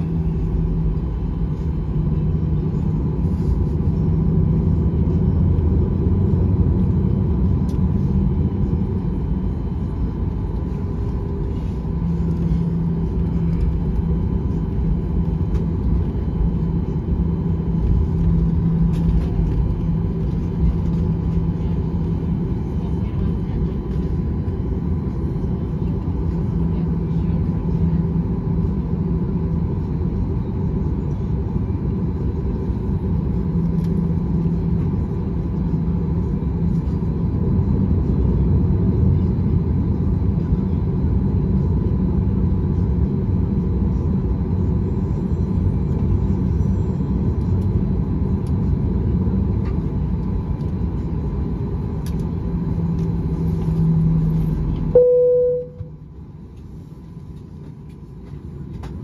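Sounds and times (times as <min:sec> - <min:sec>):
aircraft engines idling rumble: 0:00.0 - 0:59.0
low hum: 0:00.0 - 0:59.0
faint steady whine: 0:41.4 - 0:59.0.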